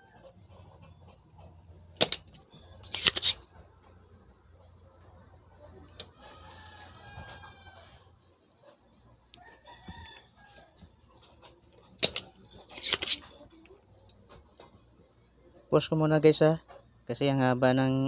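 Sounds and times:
rooster crowing: 0.0 - 0.4, 6.0 - 8.1, 9.4 - 10.9
desoldering pump snapping: 2.0 - 3.4, 12.0 - 13.2.

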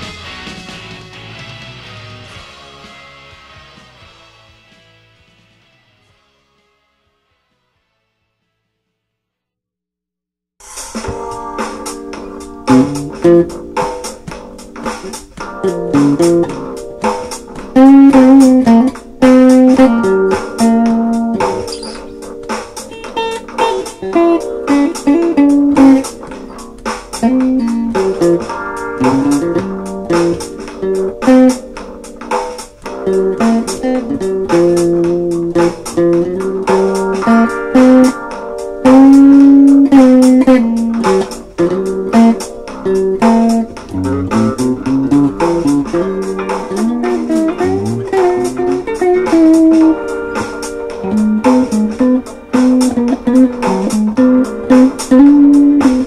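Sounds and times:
plucked guitar instrumental: 11.0 - 56.0.

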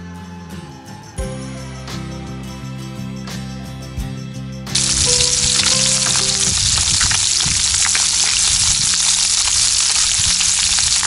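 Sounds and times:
fish sizzling in hot oil: 4.8 - 11.0
oil crackling and popping: 4.8 - 11.0.

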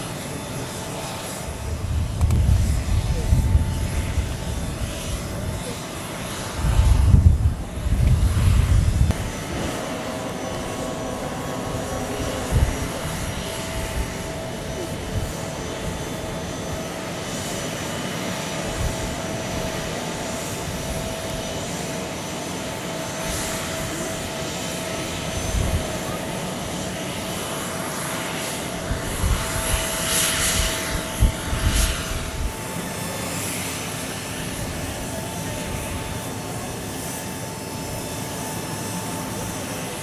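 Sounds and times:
aircraft engine whining: 0.0 - 40.0
low rumbling gusts: 1.5 - 5.7, 6.4 - 16.8.

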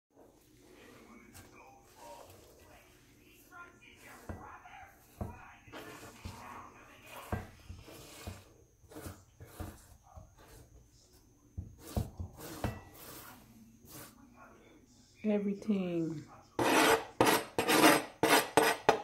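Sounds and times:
cutting board scraping: 4.0 - 10.8, 11.6 - 14.2, 16.6 - 19.0.

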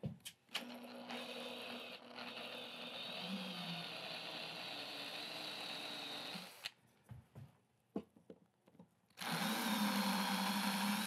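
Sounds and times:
cordless drill motor: 0.6 - 6.8, 9.2 - 11.0.

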